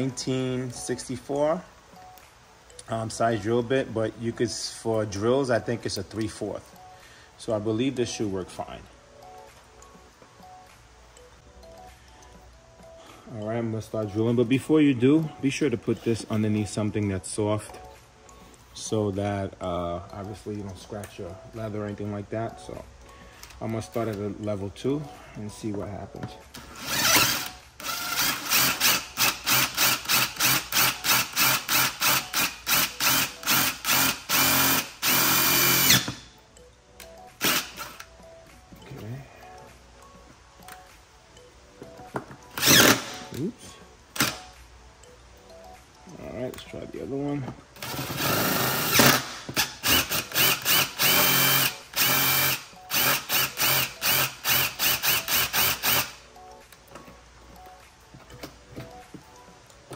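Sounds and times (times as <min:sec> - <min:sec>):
impact driver drilling: 0:26.8 - 0:36.2, 0:37.4 - 0:38.0, 0:42.6 - 0:43.2, 0:47.8 - 0:56.1.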